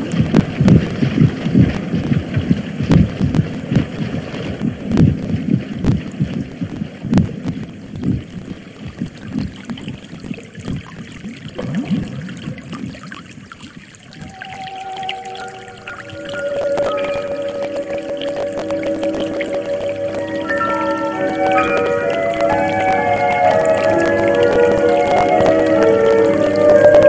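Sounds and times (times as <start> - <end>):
low irregular thuds: 0.0 - 13.1.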